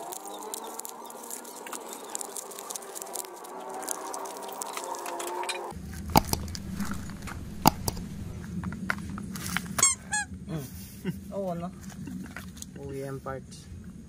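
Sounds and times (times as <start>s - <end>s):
plastic bags crinkling: 0.0s - 5.1s
steady low hum: 5.8s - 8.7s
sharp clicks: 6.1s - 8.4s.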